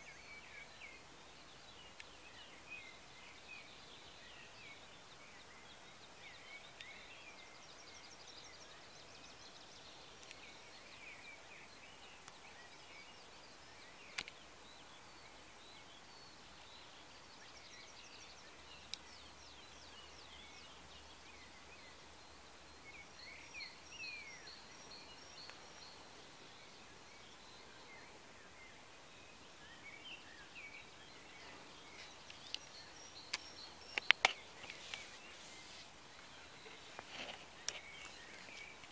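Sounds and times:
songbirds singing: 0.0 - 38.9
steady outdoor hiss: 0.0 - 38.9
sharp clicks: 33.3 - 35.1.

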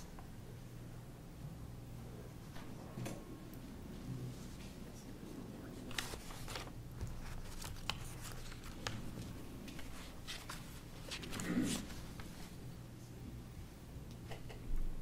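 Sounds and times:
low room hum: 0.0 - 15.0
papers rustling: 5.9 - 12.7.

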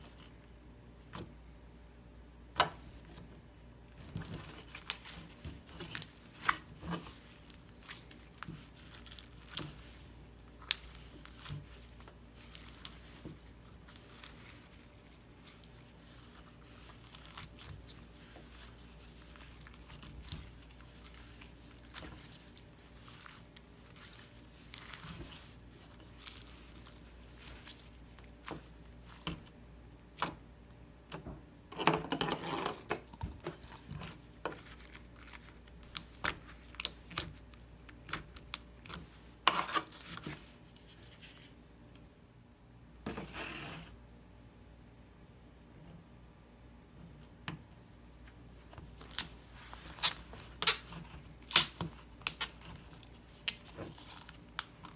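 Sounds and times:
slime crackling and popping: 3.9 - 29.5, 48.9 - 54.9.

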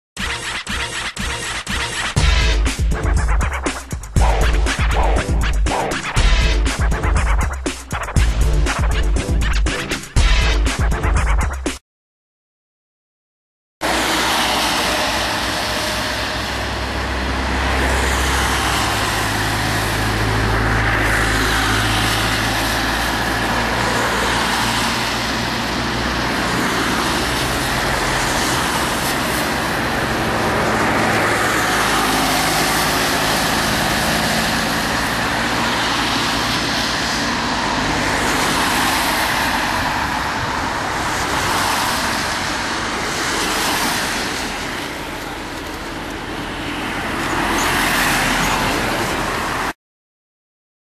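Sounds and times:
cars passing on a wet road: 13.8 - 49.8.

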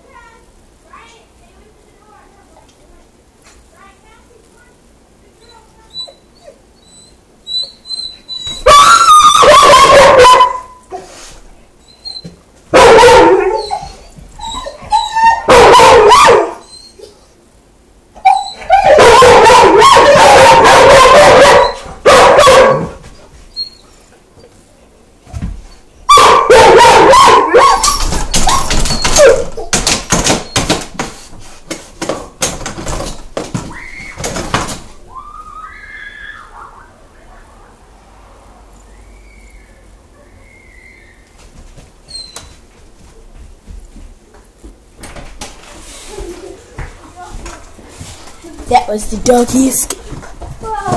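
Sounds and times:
puppy whimpering and yipping: 5.9 - 9.4, 13.4 - 15.5, 16.6 - 17.2, 18.2 - 19.0, 42.1 - 42.5
puppy howling: 5.9 - 10.7, 12.8 - 17.1, 18.2 - 22.9, 35.1 - 37.5.

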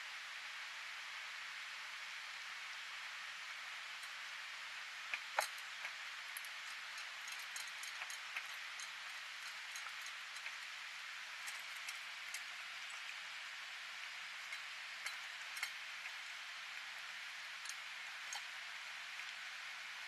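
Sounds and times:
steady hiss: 0.0 - 20.0
cats eating from metal bowls: 5.0 - 20.0.

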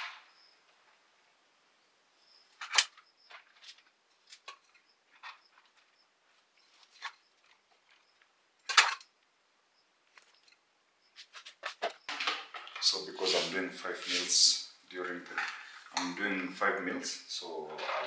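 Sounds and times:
spoon scraping container: 13.2 - 14.4.

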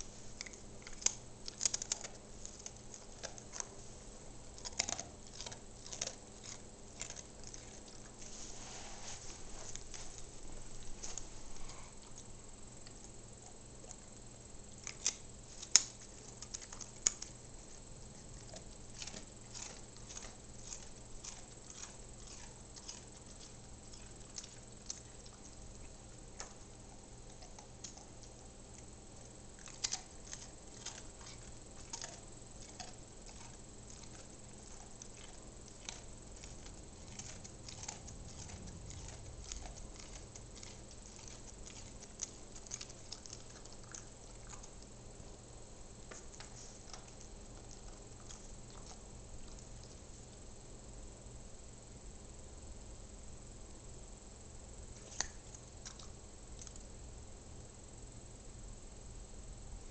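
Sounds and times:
dog crunching biscuit: 0.0 - 8.4, 14.7 - 45.0.

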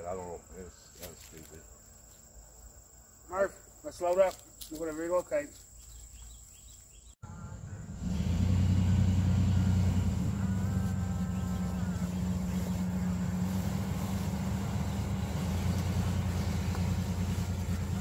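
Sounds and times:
minivan engine idling: 7.2 - 18.0.

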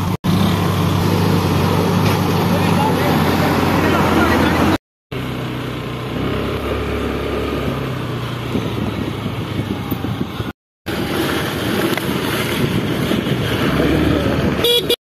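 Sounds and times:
diesel truck engine running: 0.0 - 14.8.

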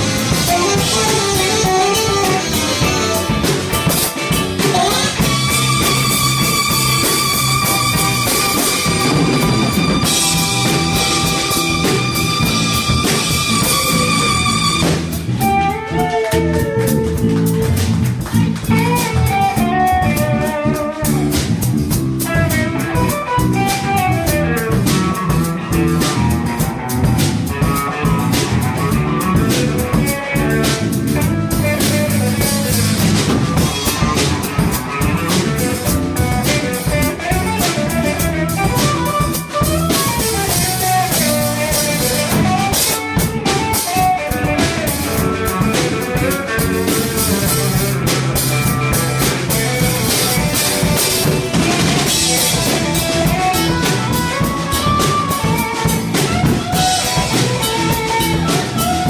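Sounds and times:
alto saxophone melody: 0.0 - 17.7, 33.6 - 59.0
drum kit: 0.0 - 59.0
electric bass: 0.0 - 59.0
electric guitar: 0.0 - 59.0.

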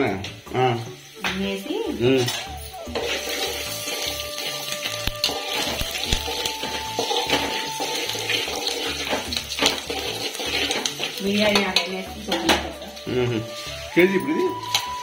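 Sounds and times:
onions frying in oil: 0.0 - 15.0
metal spoon scraping pot: 2.2 - 13.0.

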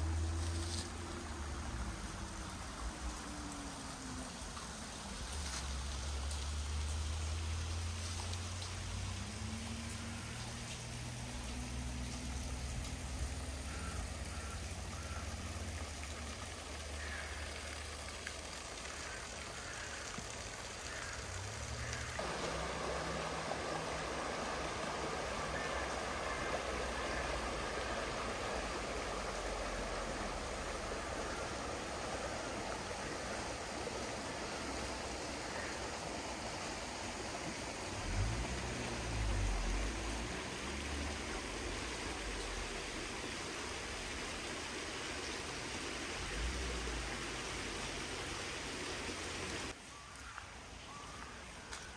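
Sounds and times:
river water rushing: 0.0 - 49.8
low rumbling: 21.8 - 35.5.

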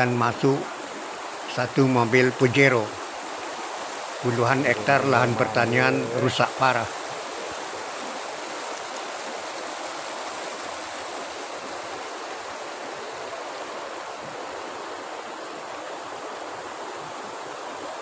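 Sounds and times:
river rushing over stones: 0.0 - 18.0.

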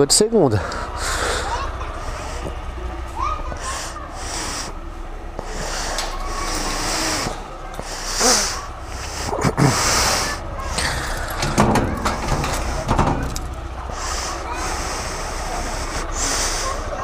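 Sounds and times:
motorcycle engine idling: 0.5 - 17.0
breathing: 0.6 - 2.7, 3.6 - 4.8, 5.4 - 11.5, 13.9 - 17.0
knocks and scrapes: 10.6 - 13.7.

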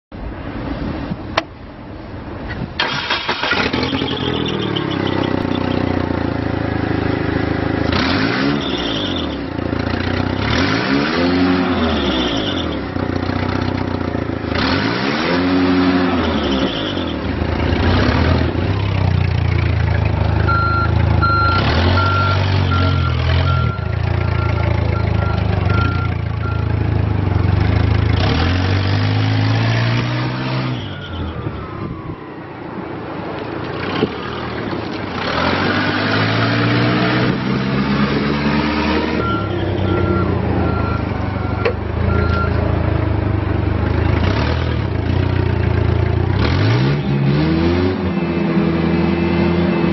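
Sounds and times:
forklift engine revving: 2.8 - 31.0, 33.7 - 49.9
backup beeper beeping: 20.5 - 26.8, 39.1 - 42.6, 48.0 - 49.9.

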